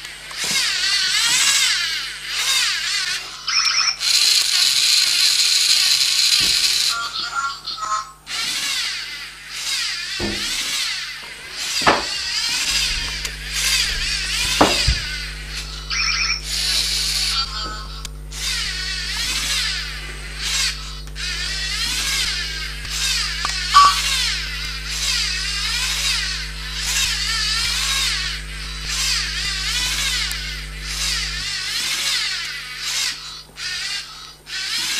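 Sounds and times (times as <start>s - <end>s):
servo motors whirring: 0.3s - 7.2s, 8.3s - 34.9s
sharp clicks: 4.0s - 7.0s, 23.4s - 24.8s.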